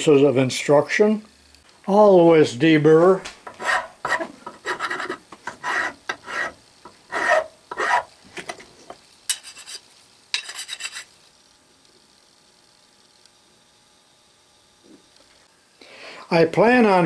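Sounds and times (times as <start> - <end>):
hand file scraping metal: 3.4 - 8.1, 9.3 - 11.1.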